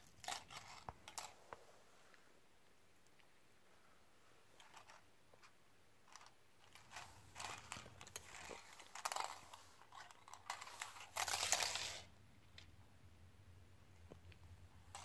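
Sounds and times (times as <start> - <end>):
plastic toys scraping on wooden floor: 6.1 - 12.1.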